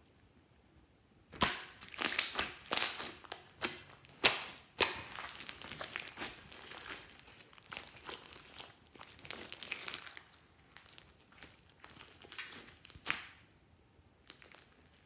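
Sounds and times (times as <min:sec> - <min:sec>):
slime snapping and popping: 0:01.3 - 0:10.2, 0:10.8 - 0:13.4.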